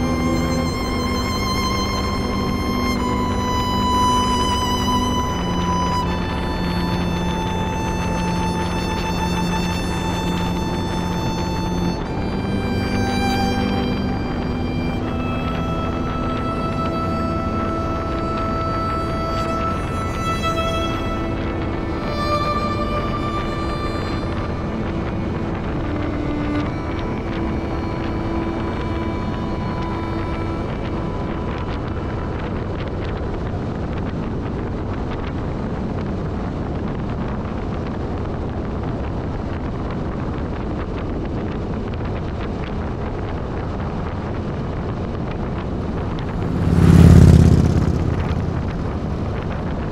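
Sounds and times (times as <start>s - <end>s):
wind buffeting microphone: 0.0s - 49.9s
deep whoosh: 45.1s - 49.9s
motorcycle engine running: 45.5s - 49.9s.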